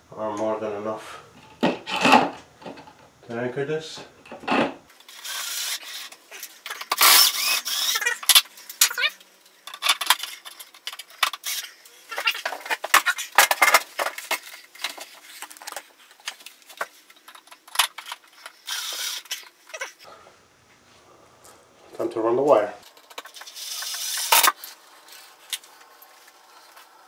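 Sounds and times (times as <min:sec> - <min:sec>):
cordless drill driving screws: 0:06.9 - 0:08.3, 0:18.7 - 0:19.4.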